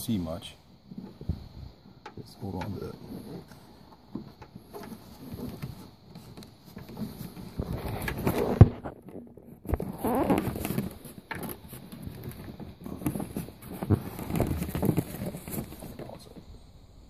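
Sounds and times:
hands rustling and scraping: 2.4 - 16.4.

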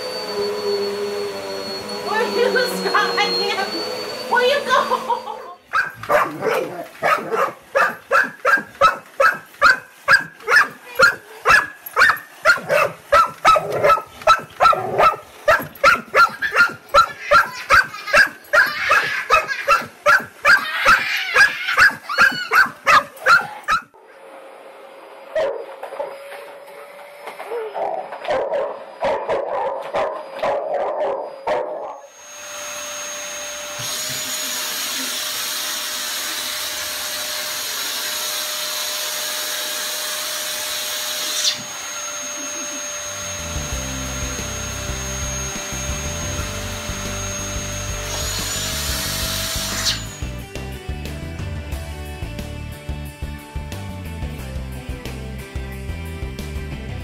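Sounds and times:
robot vacuum humming: 0.0 - 20.5, 31.2 - 50.3
vacuum cleaner running: 0.0 - 50.6
dog barking rapidly: 5.7 - 23.9
dog whimpering: 15.5 - 19.9, 20.5 - 23.9.

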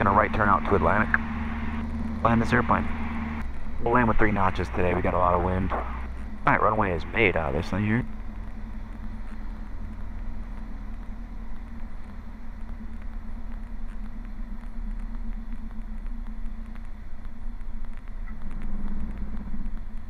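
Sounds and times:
propeller plane engine drone: 0.0 - 20.0.

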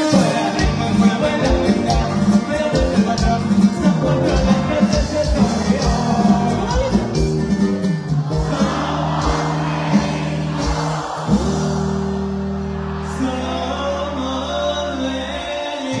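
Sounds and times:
person singing: 0.0 - 7.4
live band music over a pa: 0.0 - 16.0
drum hits: 4.4 - 12.3.

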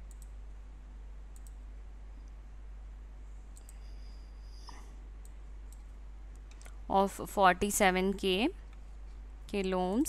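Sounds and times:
computer mouse clicks: 0.0 - 0.4, 1.3 - 1.6, 3.5 - 3.9, 4.6 - 6.8
steady low hum: 0.0 - 10.0.

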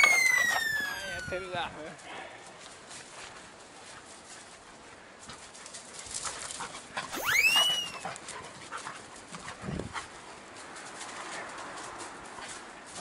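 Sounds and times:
whistle-like sliding tone: 0.0 - 1.4, 7.1 - 8.1
puppy running on grass: 0.0 - 13.0.

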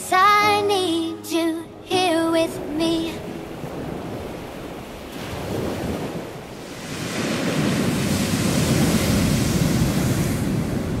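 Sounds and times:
ocean surf breaking: 1.9 - 11.0
wind buffeting microphone: 3.2 - 11.0.

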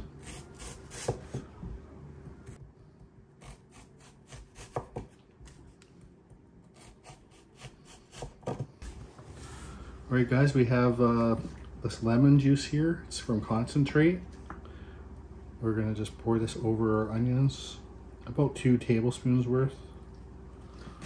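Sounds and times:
knife slicing onion on wooden board: 0.2 - 1.5, 3.4 - 5.2, 6.7 - 8.7.

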